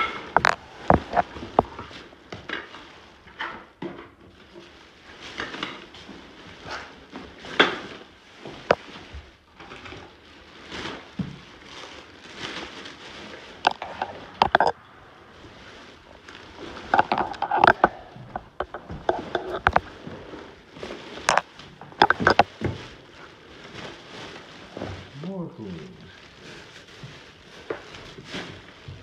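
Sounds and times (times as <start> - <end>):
objects knocking and clattering: 0.0 - 12.8, 13.5 - 14.8, 16.6 - 23.1
rustling: 0.0 - 29.0.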